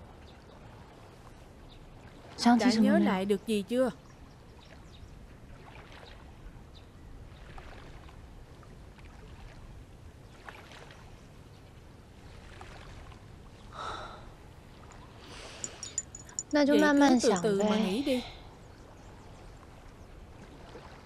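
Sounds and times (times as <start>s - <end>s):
breathy sigh: 13.7s - 14.4s.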